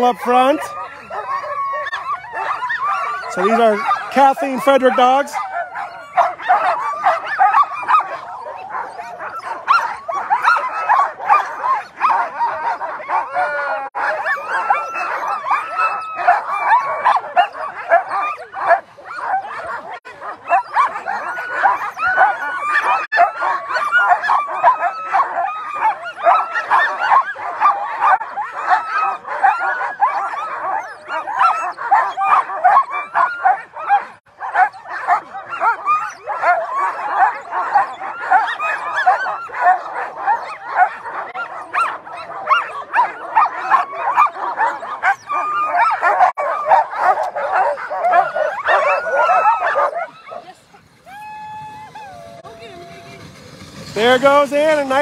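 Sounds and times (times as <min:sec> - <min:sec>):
sled dogs yipping and barking: 0:00.0 - 0:55.0.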